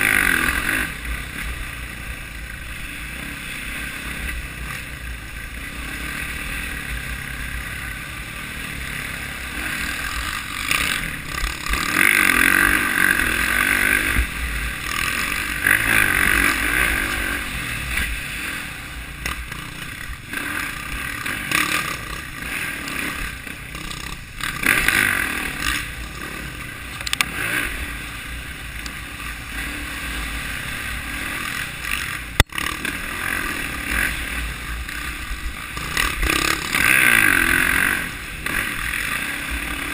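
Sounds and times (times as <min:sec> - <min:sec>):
dirt bike engine revving: 0:00.0 - 0:39.9
sharp click: 0:27.0 - 0:27.3.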